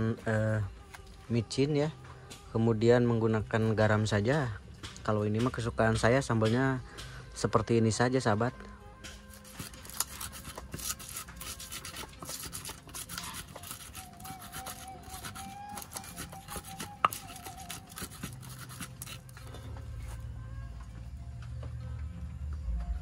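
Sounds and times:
pestle grinding in mortar: 9.0 - 20.3.

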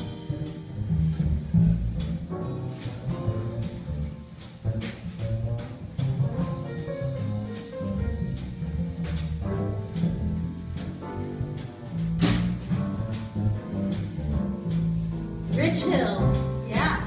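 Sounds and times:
jazz band instrumental: 0.0 - 17.0.

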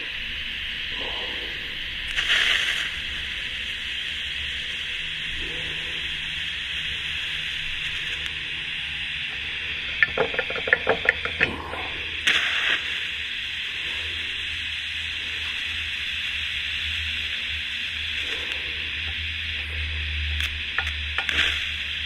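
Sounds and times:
welding arc hissing: 0.0 - 22.0
sharp ticks: 20.4 - 21.7.

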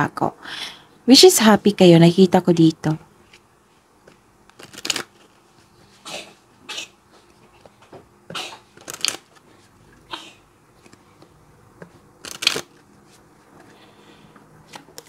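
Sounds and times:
cards being shuffled: 4.0 - 5.4, 8.7 - 9.7, 10.8 - 13.2.

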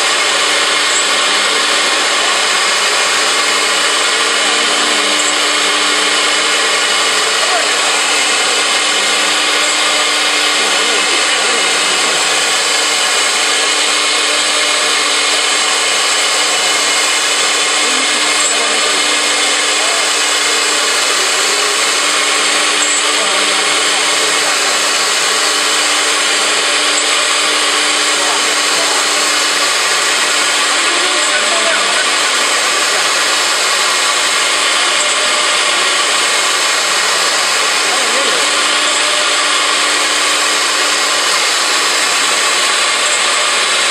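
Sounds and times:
router bit cutting wood: 0.0 - 43.9.

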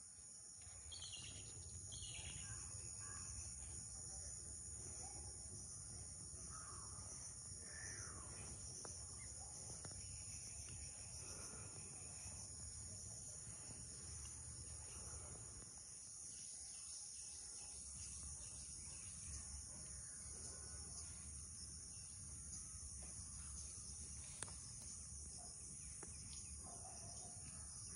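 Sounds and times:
crickets chirping chorus: 0.0 - 27.9.

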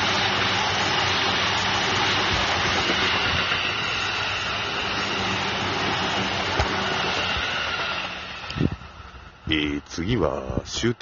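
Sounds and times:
train wheels rumbling on rails: 0.0 - 10.9
train hum: 0.0 - 11.0.

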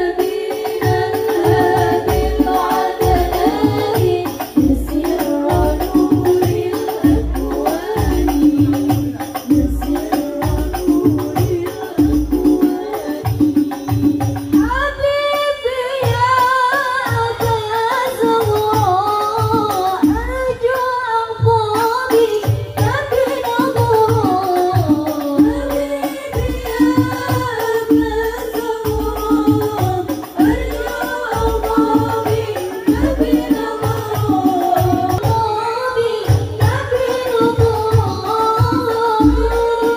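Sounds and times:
drum beat: 0.0 - 14.8, 22.1 - 35.4.

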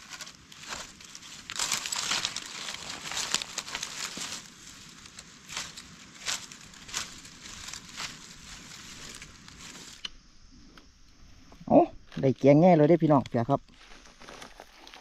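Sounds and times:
dry leaf litter rustling: 0.0 - 10.0
knife digging in soil: 0.0 - 10.1.

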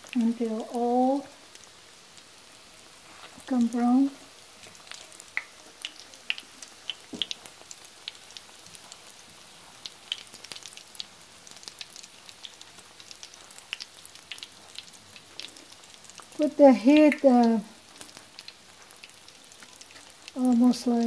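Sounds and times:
food sizzling in oil with pops: 0.0 - 21.0.

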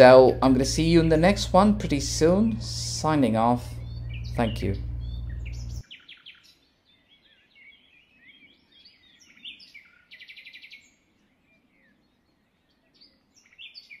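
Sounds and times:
low background hiss: 0.0 - 5.8
bird trill: 0.0 - 12.0
small birds chirping: 0.0 - 14.0.

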